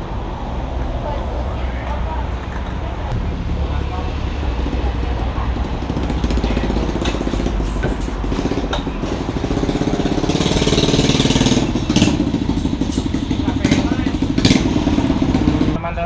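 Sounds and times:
motorcycle engine running: 3.2 - 15.8.

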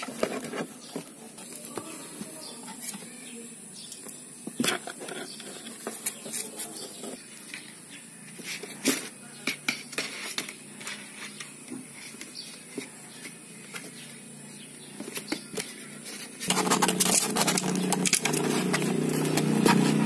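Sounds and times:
claws scratching on cardboard: 4.6 - 14.2, 14.8 - 20.0.

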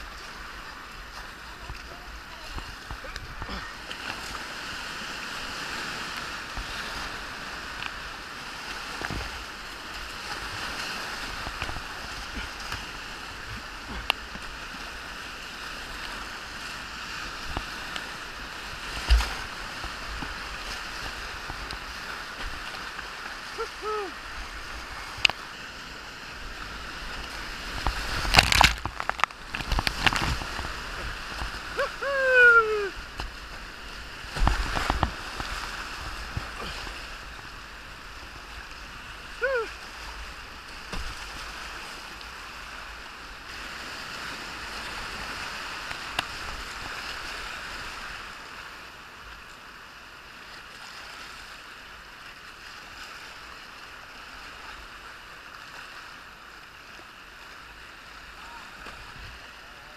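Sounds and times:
whitewater rapids rushing: 0.0 - 48.3
paddle knocks and splashes: 8.8 - 9.4, 11.3 - 14.6, 18.7 - 23.4, 27.0 - 31.8, 33.0 - 37.1, 40.8 - 42.1
person calling out: 23.5 - 24.2, 31.7 - 33.0, 39.4 - 39.8.

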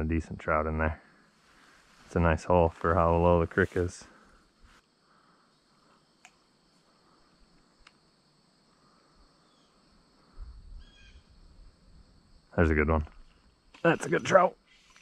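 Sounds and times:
faint insect chirring: 0.0 - 15.0
faint ticks: 6.2 - 6.5, 7.5 - 8.0.

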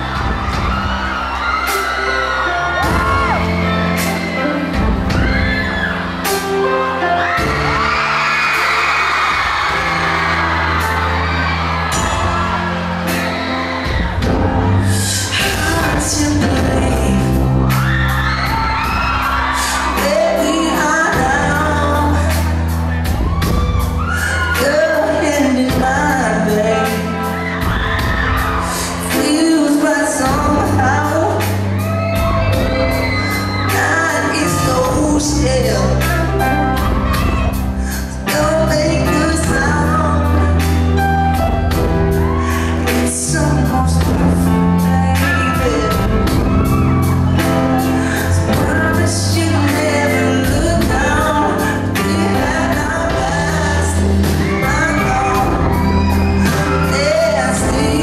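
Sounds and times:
drums playing a beat: 0.0 - 43.1, 43.7 - 58.0
bass guitar: 0.0 - 58.0
man singing into a microphone: 48.1 - 58.0.

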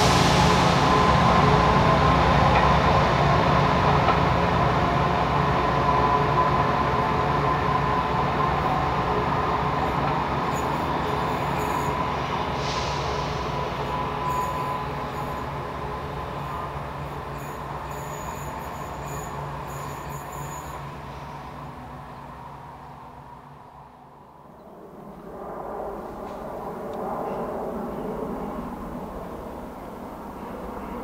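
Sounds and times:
air hiss: 0.0 - 2.4, 11.2 - 15.2
diesel train engine droning: 0.0 - 24.5.

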